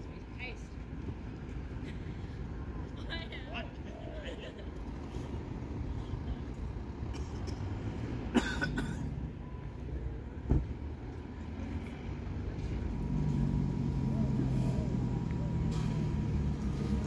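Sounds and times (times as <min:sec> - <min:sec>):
bus engine rumble: 0:00.0 - 0:17.0
short thump: 0:10.4 - 0:10.7.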